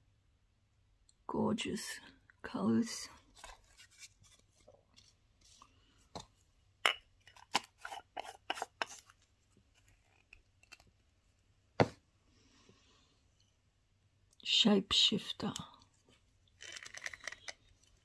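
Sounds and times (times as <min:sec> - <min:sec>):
small jars clicking and knocking: 0:06.8 - 0:09.2, 0:09.8 - 0:11.0, 0:16.5 - 0:18.0
lid screwed on: 0:06.9 - 0:09.1.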